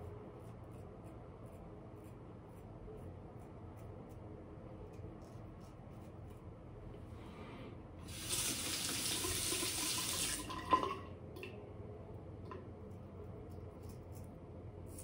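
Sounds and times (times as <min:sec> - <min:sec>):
tap water running into sink: 0:08.1 - 0:11.1.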